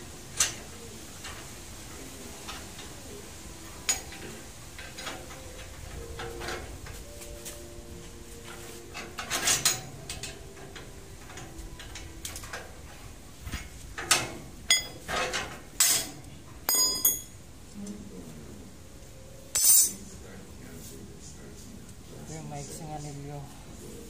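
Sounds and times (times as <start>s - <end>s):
metal rebar clinking and clanking: 3.8s - 7.0s, 8.9s - 12.9s, 13.5s - 17.4s, 19.5s - 20.0s.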